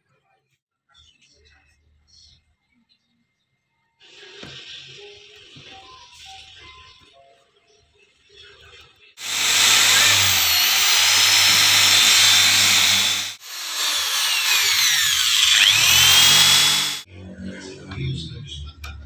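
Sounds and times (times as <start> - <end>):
electric drill boring into wood: 9.2 - 17.1.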